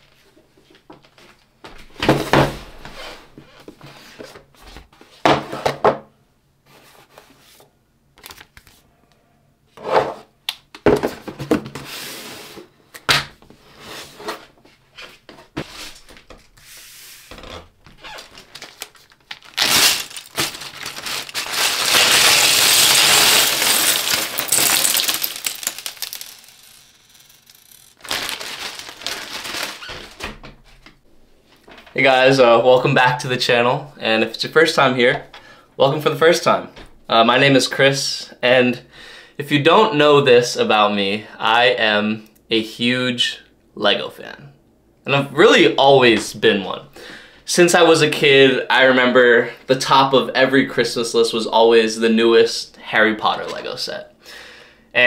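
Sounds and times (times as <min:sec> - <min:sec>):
plastic bag crinkling and tearing: 0:17.4 - 0:30.3
plastic bricks clicking: 0:21.2 - 0:28.0.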